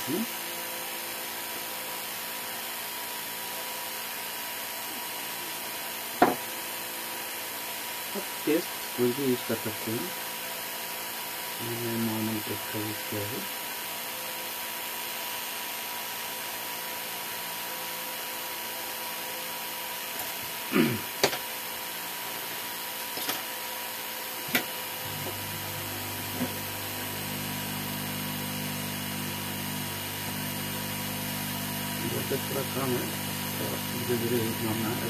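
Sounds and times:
hot air gun fan humming: 19.1 - 35.0.

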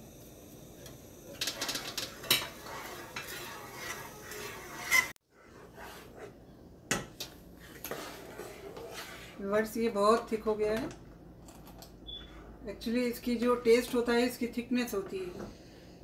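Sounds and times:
spoon scraping a saucepan: 1.4 - 6.4, 7.6 - 10.3.

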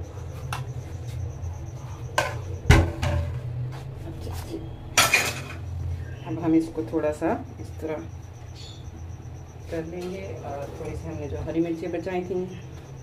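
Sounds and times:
low steady hum: 0.0 - 13.0
dishes clattering: 5.0 - 5.6
steel dishes knocking and clinking: 5.0 - 5.6.

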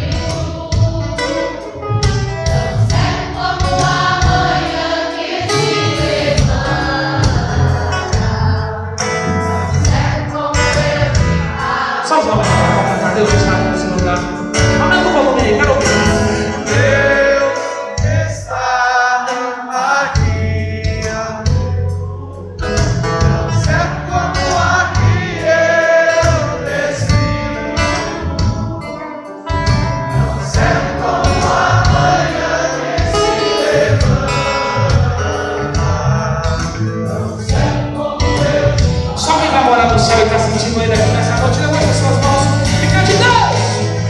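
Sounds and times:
acoustic guitar: 0.0 - 44.0
many voices singing along: 0.0 - 44.0
man singing: 12.1 - 27.3, 33.6 - 44.0.

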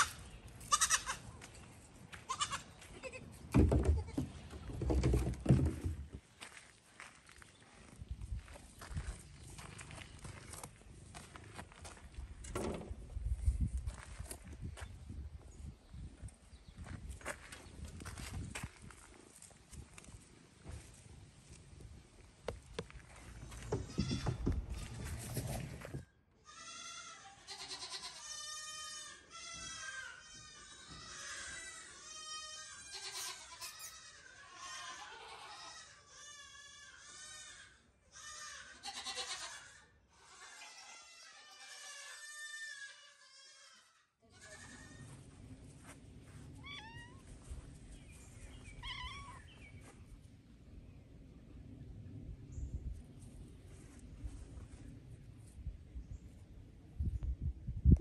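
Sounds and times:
goats bleating: 0.0 - 1.2, 2.3 - 3.4, 26.4 - 45.1
cat meowing: 46.6 - 47.2, 48.8 - 49.4.

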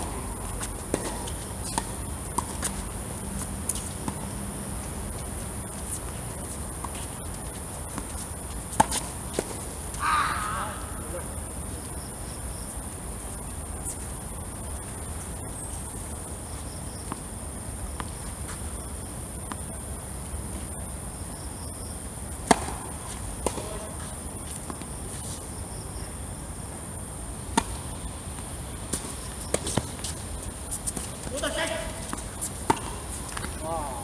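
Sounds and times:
insects chirring: 0.0 - 34.0
tennis ball hit by rackets: 8.7 - 9.6, 22.4 - 23.9, 30.8 - 33.6.

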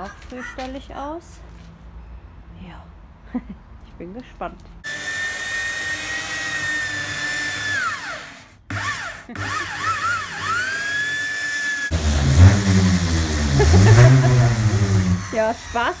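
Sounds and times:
belt sander whining on wood: 4.8 - 16.0
orbital sander humming: 4.9 - 16.0.

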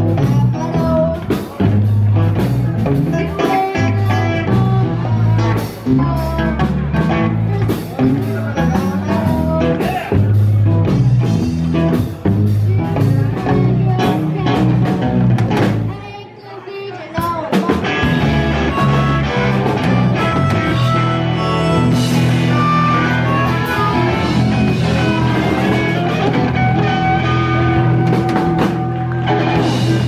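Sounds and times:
drum kit: 0.0 - 16.0, 17.2 - 30.0
electric guitar: 0.0 - 16.1, 17.2 - 30.0
live blues-rock band playing: 0.0 - 30.0.

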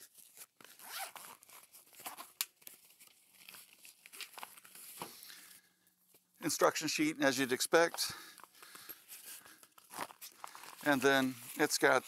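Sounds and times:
fabric case rustling and crinkling: 7.8 - 12.0.

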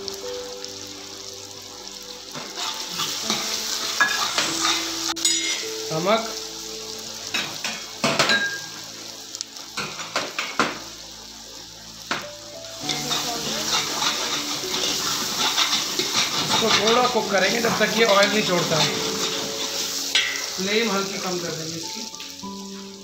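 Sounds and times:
onions sizzling in hot oil: 0.0 - 23.0
ladle scraping and clinking on pot: 2.4 - 5.6, 12.8 - 20.6.

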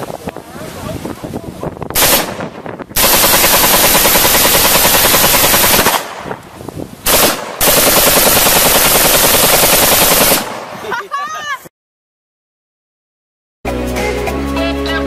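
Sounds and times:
rifle firing rapid bursts: 2.0 - 6.3, 7.0 - 10.8.

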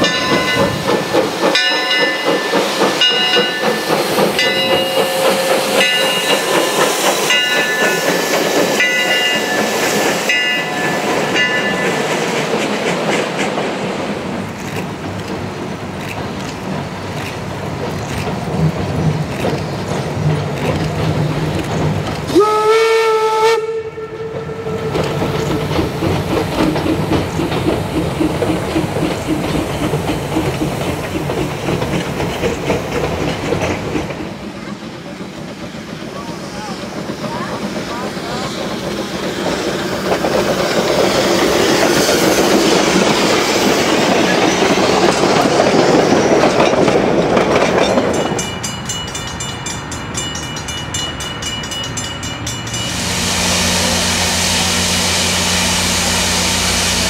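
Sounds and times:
train wheels clattering: 0.0 - 57.0
steam whistle blast: 22.3 - 24.9, 52.9 - 57.0.

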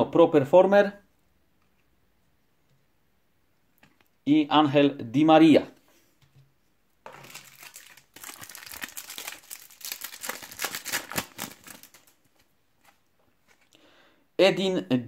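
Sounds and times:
foil wrapper tearing and crinkling: 7.1 - 12.5.

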